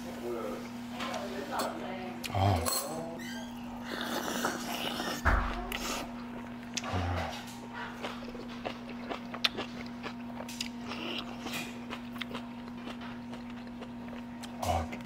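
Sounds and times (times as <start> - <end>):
person chewing crunchy food: 3.8 - 15.0.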